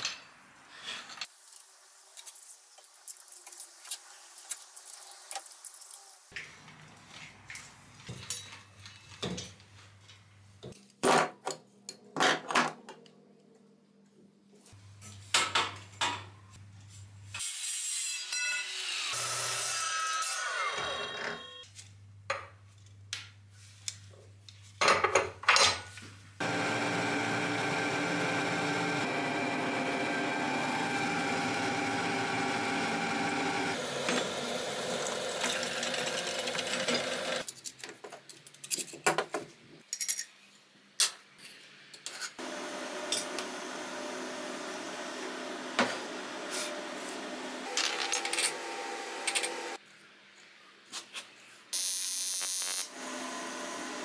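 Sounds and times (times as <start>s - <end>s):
power tool running: 26.4s - 37.4s, 42.4s - 49.8s, 52.6s - 54.0s.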